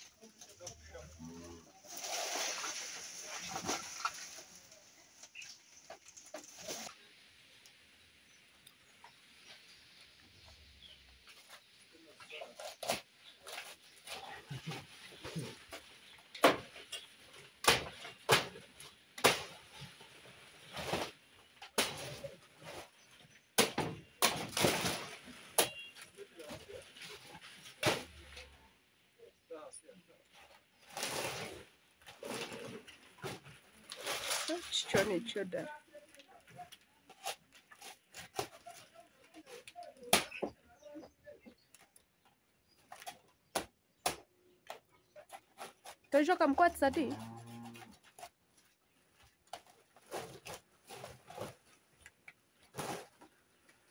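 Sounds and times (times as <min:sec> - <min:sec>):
leaves rustling: 0:00.0 - 0:23.4, 0:30.3 - 0:40.1
sharp cracks and knocks: 0:15.2 - 0:19.9, 0:20.7 - 0:22.9, 0:23.6 - 0:26.1, 0:42.8 - 0:46.0.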